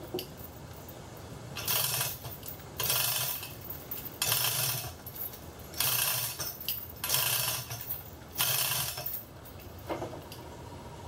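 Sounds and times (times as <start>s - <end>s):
hoist chain rattling: 1.6s - 9.9s.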